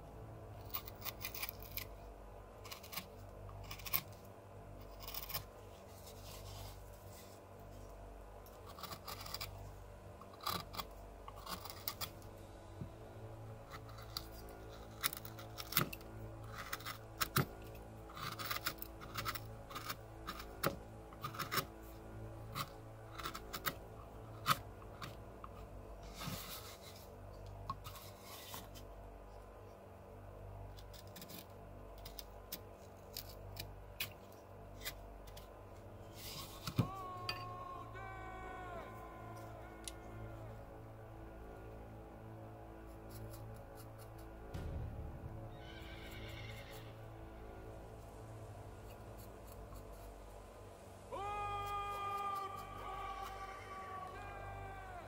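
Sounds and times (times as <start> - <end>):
faint steady hum: 0.0 - 55.0
gouge cutting into bark: 10.2 - 12.2.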